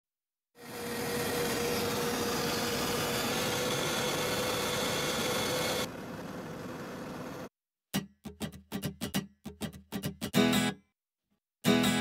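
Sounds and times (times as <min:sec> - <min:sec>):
helicopter cabin drone: 0:00.6 - 0:07.5.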